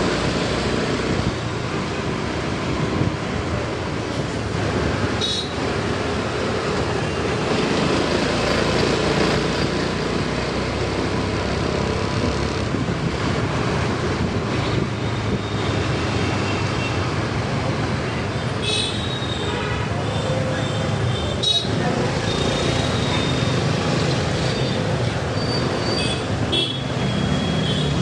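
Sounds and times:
passing traffic: 0.0 - 28.0
road noise: 0.0 - 28.0
wind noise: 2.6 - 5.2, 12.1 - 15.8.

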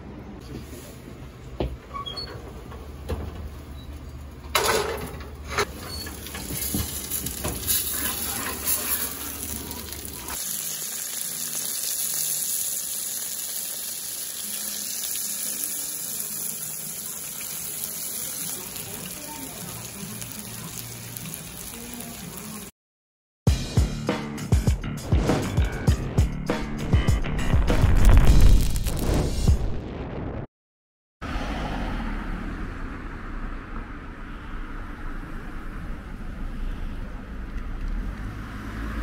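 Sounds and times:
steak sizzling: 6.0 - 22.7.

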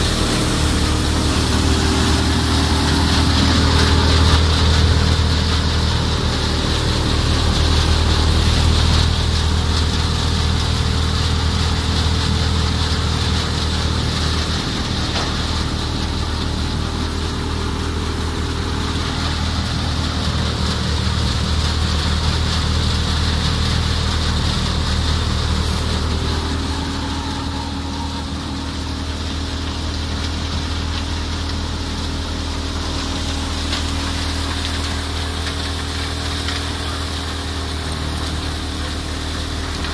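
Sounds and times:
straw and grain rushing: 0.0 - 39.9
thresher drum and blower: 0.0 - 39.9
tractor diesel engine humming: 0.0 - 39.9.

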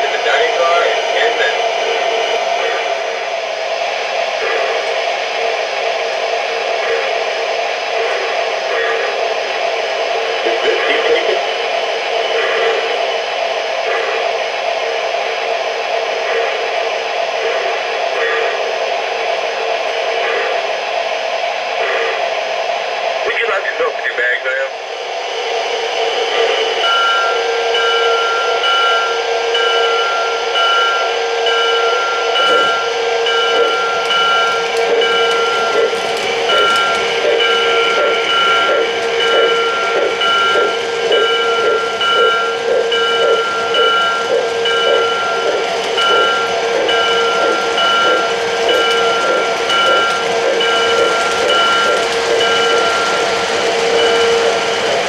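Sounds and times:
model train rolling on track: 0.0 - 20.9, 26.0 - 55.0
steady ringing tones: 23.3 - 55.0.

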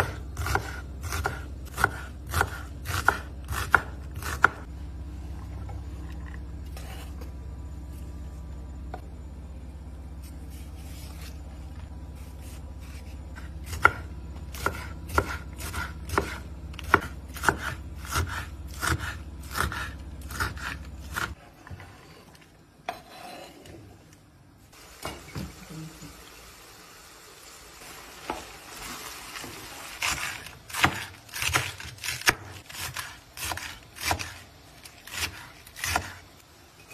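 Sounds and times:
knife chopping on wooden board: 0.0 - 4.7, 12.4 - 21.4, 30.0 - 34.4, 35.1 - 36.2
low hum: 4.0 - 21.1.

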